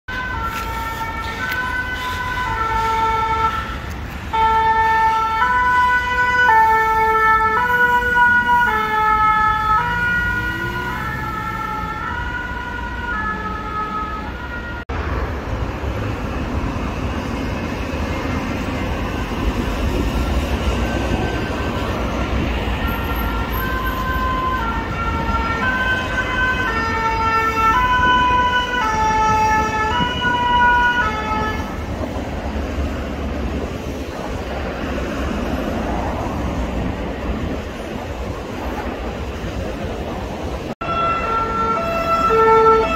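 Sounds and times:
road traffic: 0.0 - 42.9
two-tone emergency siren: 0.1 - 14.9, 18.4 - 31.9, 40.8 - 42.9.

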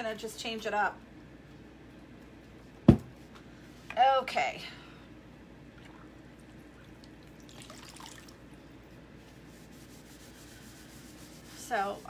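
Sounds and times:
eraser scrubbing chalkboard: 9.2 - 12.0.

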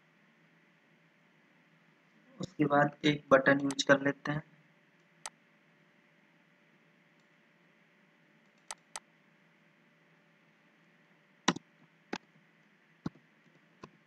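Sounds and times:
faint steady hiss: 0.0 - 14.0
mouse and keyboard clicks: 8.5 - 9.0, 11.5 - 12.3.

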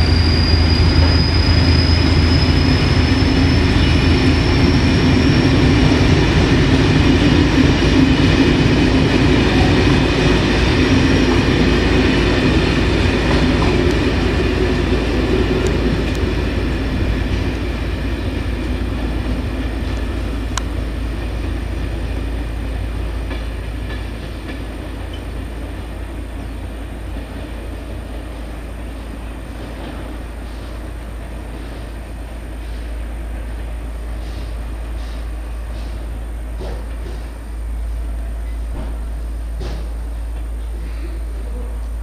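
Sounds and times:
train rolling on rails: 0.0 - 42.0.

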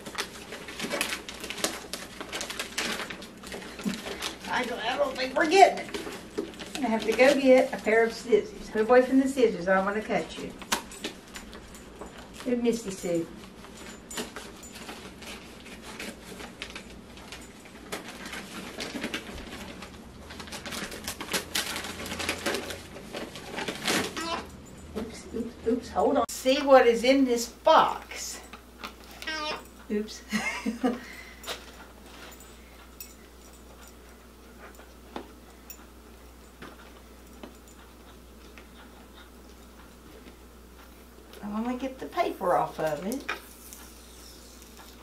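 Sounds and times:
toy package rustling and crinkling: 0.0 - 7.8, 14.2 - 24.5.

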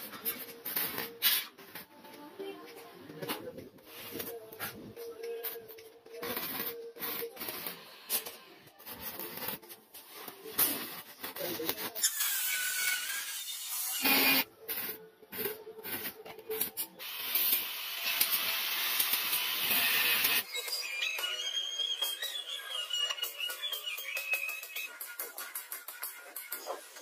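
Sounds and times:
arc welding crackling: 0.6 - 1.5, 5.4 - 20.4
angle grinder on metal: 12.0 - 14.4.

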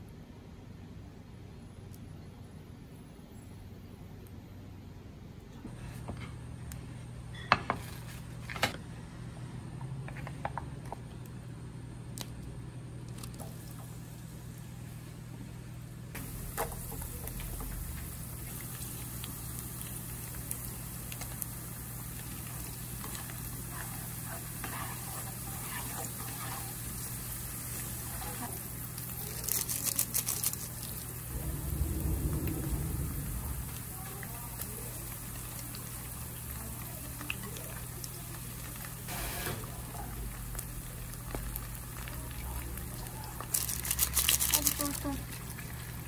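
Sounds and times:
garlic sizzling in oil: 16.2 - 31.3
low hum: 30.2 - 36.5.

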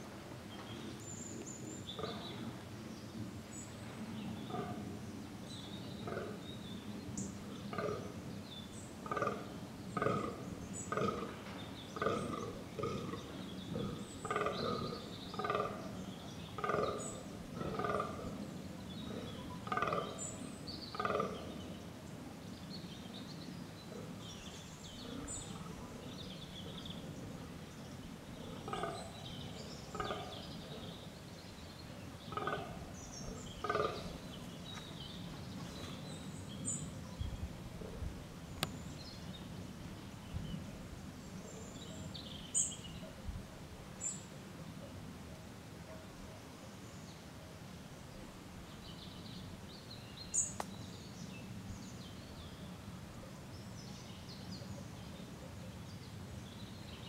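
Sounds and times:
deer groaning: 28.5 - 29.1.

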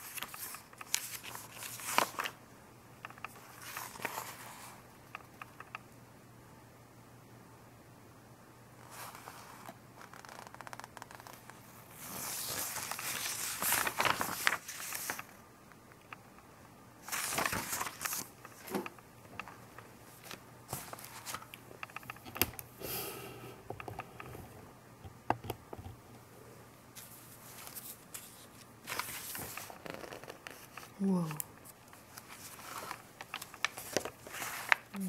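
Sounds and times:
magazine pages rustling: 0.0 - 2.4, 3.1 - 4.8, 8.8 - 15.4, 17.0 - 22.6, 27.0 - 35.0.

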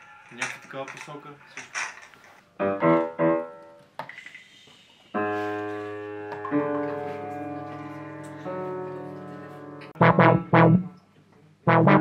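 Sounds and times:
piano chords: 2.6 - 3.8, 5.2 - 12.0.

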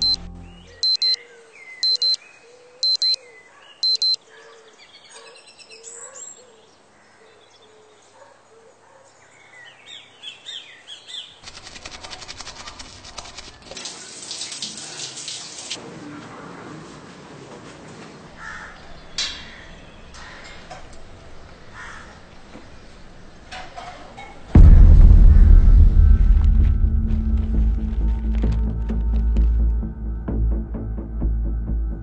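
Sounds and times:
phone alarm beeping: 0.0 - 1.2, 1.8 - 2.2, 2.8 - 3.2, 3.8 - 4.2
birds chirping: 0.0 - 8.3
shower water running: 11.9 - 15.8.

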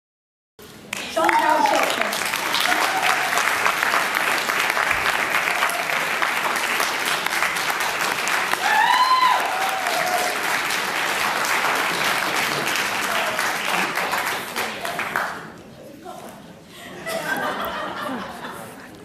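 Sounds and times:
audience applauding: 0.8 - 15.6
crowd cheering: 0.9 - 15.3.

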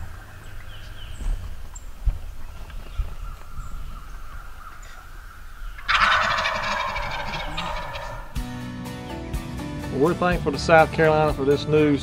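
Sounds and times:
turkey gobbling: 3.1 - 8.4.

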